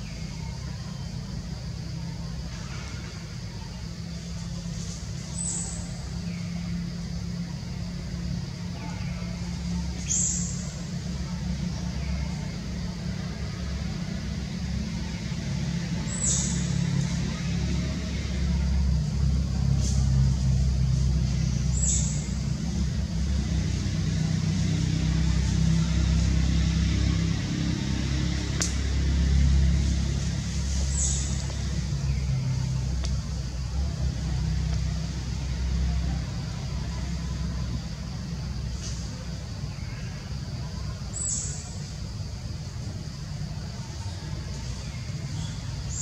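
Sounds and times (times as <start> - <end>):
low engine-like rumble: 0.0 - 46.0.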